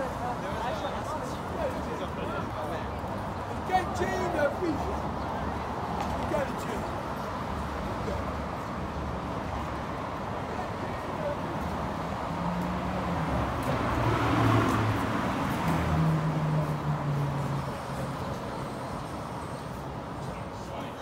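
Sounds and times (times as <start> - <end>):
hum of passing cars: 0.0 - 21.0
vehicle engine passing: 12.4 - 18.2.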